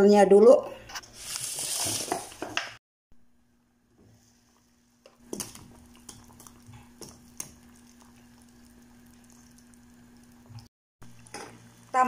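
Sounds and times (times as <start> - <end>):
low steady hum: 3.2 - 12.0
broth bubbling: 5.1 - 11.9.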